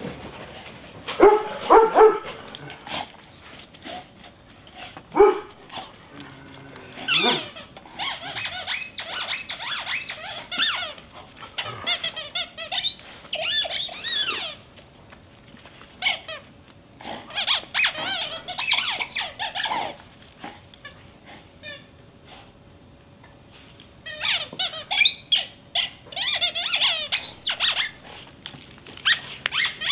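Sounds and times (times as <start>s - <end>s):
squeaky dog toy squeaking: 7.0s - 11.0s, 17.4s - 19.7s, 24.0s - 28.0s, 29.0s - 29.9s.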